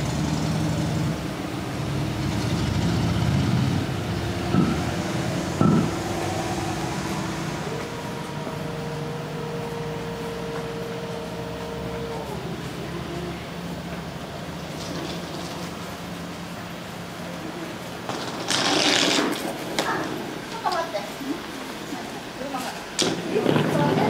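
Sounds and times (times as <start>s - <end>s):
vehicle engine running: 0.0s - 19.0s
street traffic: 0.0s - 24.0s.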